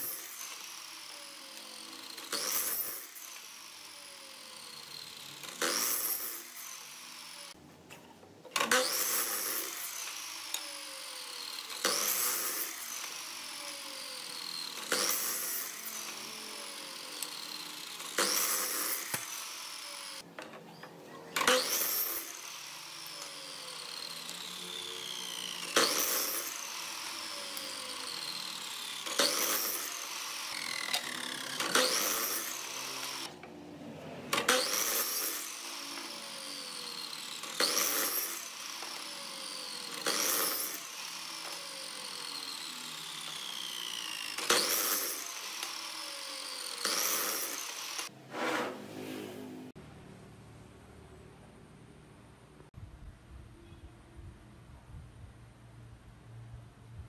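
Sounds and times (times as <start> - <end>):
miter saw cutting wood: 0.0 - 7.6, 8.6 - 20.3, 21.3 - 49.7
saw motor whine spinning down: 0.0 - 7.6, 8.6 - 20.2, 21.4 - 33.4, 34.3 - 48.1.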